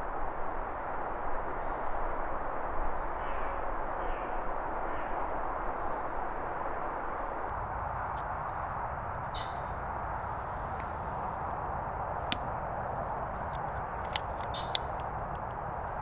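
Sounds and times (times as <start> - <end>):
faint high bird chirps: 8.2 - 11.4
lantern switch clicks: 12.2 - 12.5.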